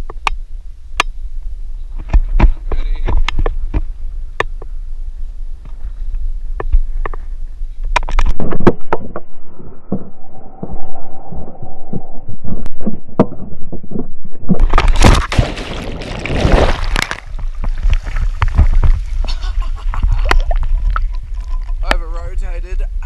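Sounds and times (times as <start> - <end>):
muffled rushing wind: 0.0 - 23.0
underwater churning and bubbling: 7.9 - 23.0
body slapping into water: 14.6 - 19.3, 19.9 - 21.2
water splashing: 14.6 - 22.3.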